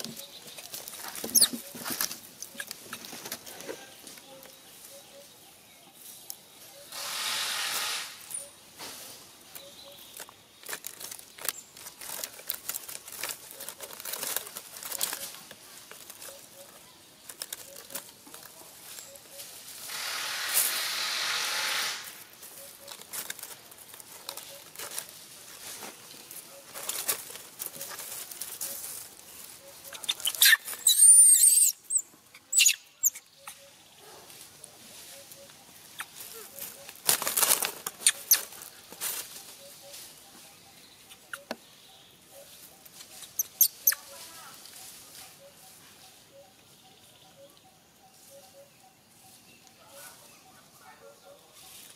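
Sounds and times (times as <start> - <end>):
dry leaves rustling and crackling: 0.0 - 31.7, 33.3 - 41.4, 42.4 - 46.2, 51.5 - 51.9
infant monkey squealing: 29.8 - 33.7.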